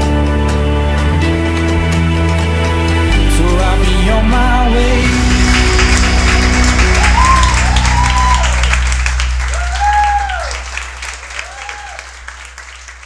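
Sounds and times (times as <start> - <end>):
audience applauding and cheering: 0.0 - 13.0
music: 0.0 - 13.0
whoops: 6.6 - 12.4.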